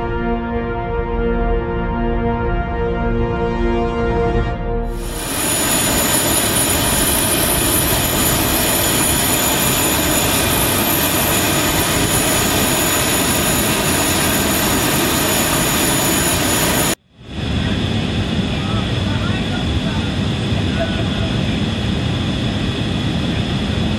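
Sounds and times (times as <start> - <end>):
jet turbine rush and whine: 4.9 - 23.9.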